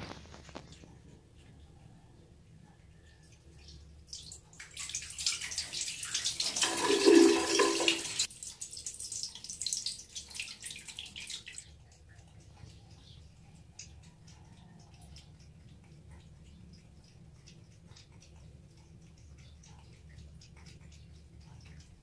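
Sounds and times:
water running into plastic bucket: 0:04.1 - 0:11.6.

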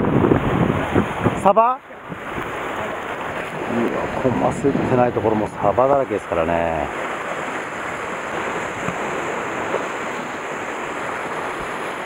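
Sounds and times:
wind on microphone: 0:00.0 - 0:05.8
surf washing against rocks: 0:00.0 - 0:12.0.

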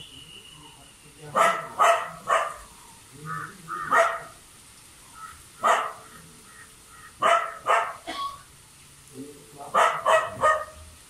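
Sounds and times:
dog barking: 0:01.3 - 0:02.7, 0:03.9 - 0:04.4, 0:05.6 - 0:06.2, 0:07.2 - 0:08.1, 0:09.7 - 0:10.9.

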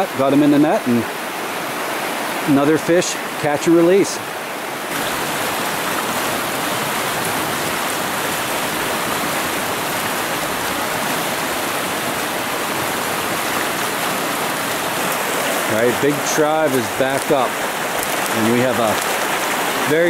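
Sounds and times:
stream rushing: 0:00.0 - 0:20.0.

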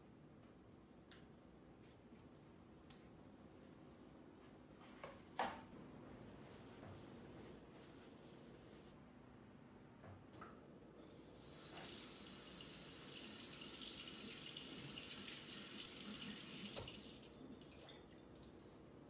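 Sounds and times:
faucet running onto paper towel: 0:11.5 - 0:17.3.

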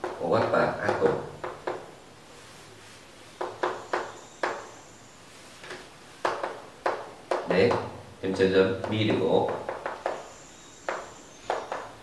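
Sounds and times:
chalk tapping on a chalkboard: 0:00.0 - 0:01.9, 0:03.4 - 0:04.7, 0:05.6 - 0:12.0.

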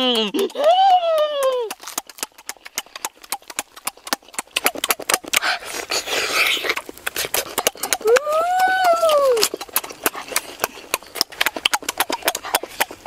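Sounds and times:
lip-smacking and chewing: 0:00.0 - 0:13.0
slurping and sucking: 0:01.6 - 0:13.0.

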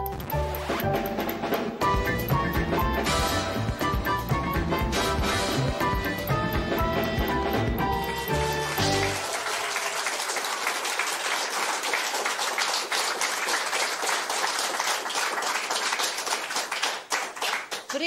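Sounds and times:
music: 0:00.0 - 0:09.4
audience applauding: 0:08.3 - 0:18.0.

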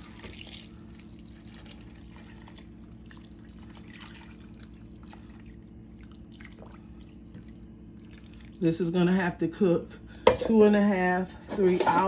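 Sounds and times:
water pouring into a pot: 0:00.0 - 0:07.3, 0:08.0 - 0:08.6.

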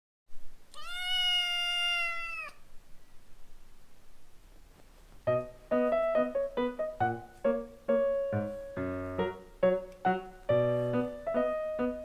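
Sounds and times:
kitten meowing: 0:00.7 - 0:02.6
piano music: 0:05.3 - 0:12.0.

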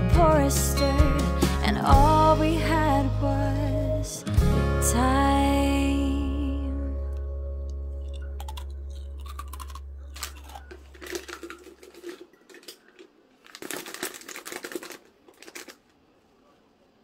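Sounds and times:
coffee sachets crinkling: 0:08.0 - 0:16.1.

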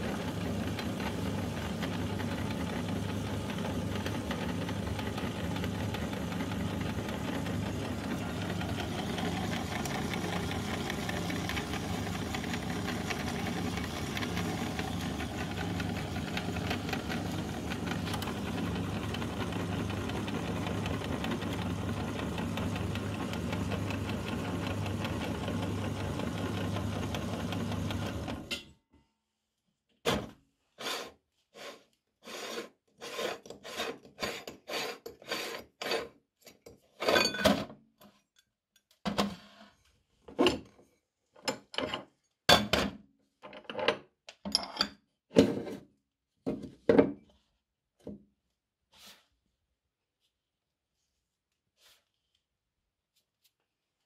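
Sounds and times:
meat grinder motor humming: 0:00.0 - 0:28.5.

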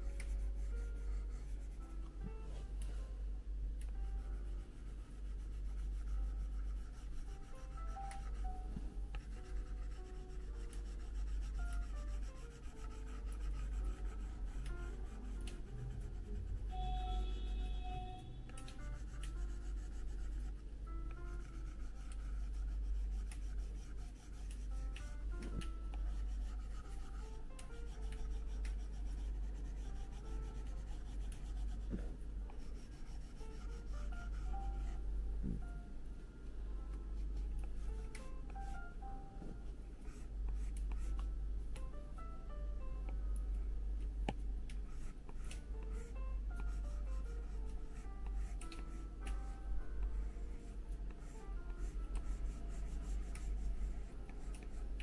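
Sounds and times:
stylus scratching and tapping on screen: 0:00.0 - 0:02.4, 0:03.8 - 0:17.6, 0:18.5 - 0:35.8, 0:37.2 - 0:38.9, 0:39.6 - 0:41.9, 0:44.0 - 0:50.2, 0:51.1 - 0:55.0
soft background music: 0:00.0 - 0:55.0
stylus tapping on screen: 0:18.5 - 0:19.6.

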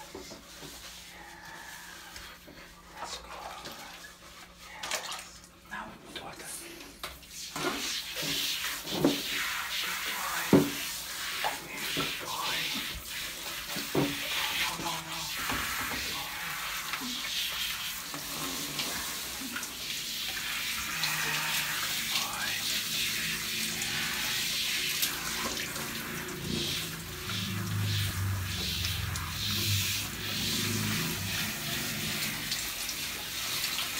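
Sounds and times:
shower head spraying water: 0:07.1 - 0:33.9.

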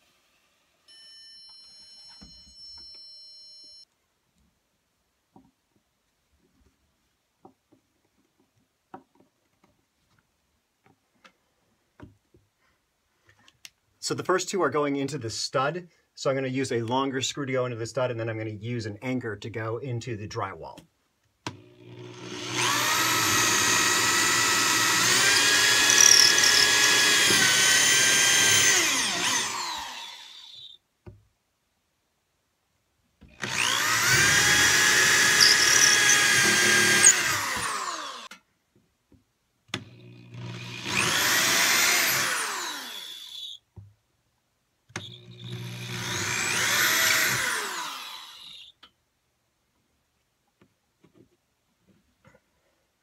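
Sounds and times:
electric drill whining: 0:21.5 - 0:30.8, 0:33.4 - 0:38.3, 0:39.8 - 0:43.6, 0:45.0 - 0:48.7.

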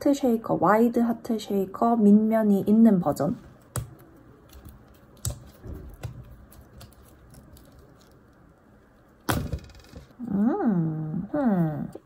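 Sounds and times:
silicone rubbing and squishing: 0:03.5 - 0:10.1.

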